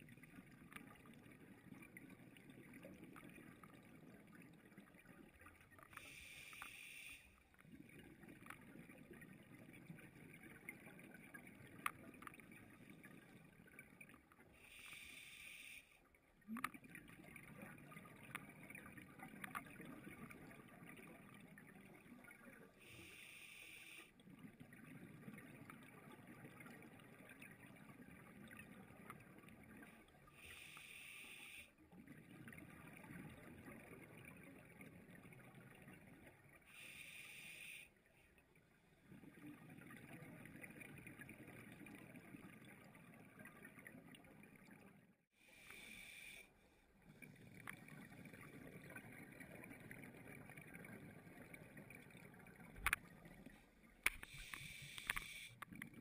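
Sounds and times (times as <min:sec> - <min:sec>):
faint clicks: 0:00.1 - 0:01.2, 0:05.4 - 0:09.3, 0:11.6 - 0:12.7, 0:15.8 - 0:21.6, 0:47.2 - 0:56.0
regulator inhalation hiss: 0:06.1 - 0:07.3, 0:14.7 - 0:15.9, 0:23.0 - 0:24.1, 0:30.5 - 0:31.7, 0:36.8 - 0:37.9, 0:45.4 - 0:46.5, 0:54.3 - 0:55.6.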